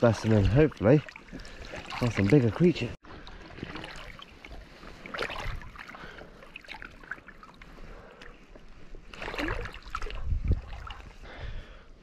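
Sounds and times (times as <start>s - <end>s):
loud water splashes: 0.0s - 4.3s
seawater sloshing in rock pool: 0.0s - 11.2s.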